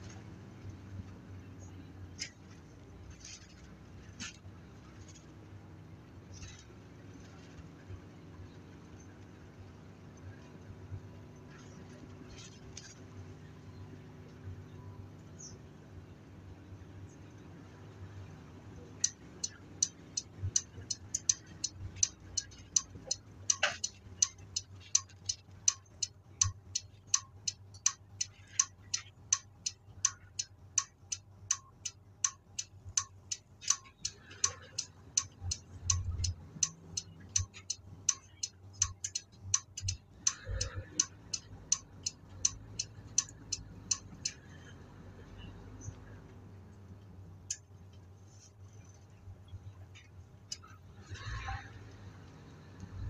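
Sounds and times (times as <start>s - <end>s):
low engine hum: 0.0s - 53.0s
flasher relay clicking: 19.0s - 44.4s.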